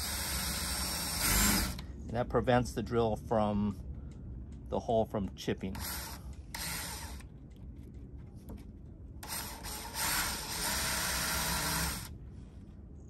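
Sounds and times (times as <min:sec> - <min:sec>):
cordless drill against fiberglass: 0:00.0 - 0:01.8, 0:05.7 - 0:07.3, 0:09.2 - 0:12.1.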